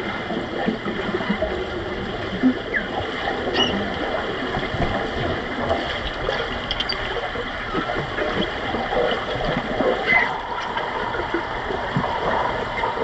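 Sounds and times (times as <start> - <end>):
underwater rushing gurgling water: 0.0 - 13.0
faint clicks: 6.0 - 8.5.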